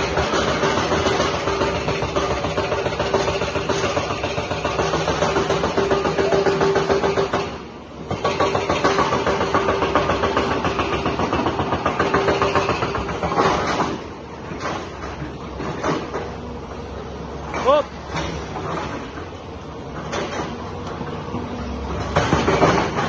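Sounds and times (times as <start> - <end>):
excavator diesel engine under load: 0.0 - 23.0.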